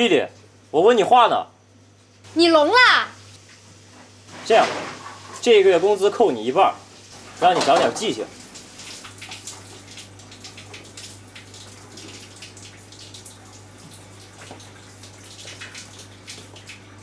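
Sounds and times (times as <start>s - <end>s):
tap water running into sink: 3.3s - 17.0s
small water splashes: 6.9s - 17.0s.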